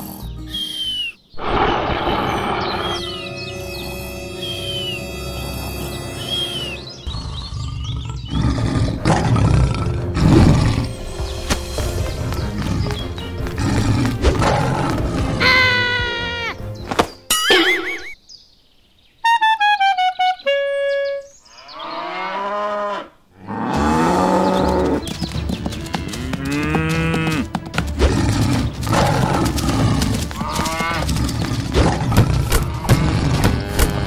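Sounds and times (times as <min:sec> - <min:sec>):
sound effect tones: 0:01.4 - 0:04.8
cows mooing: 0:21.8 - 0:25.0, 0:25.7 - 0:34.0.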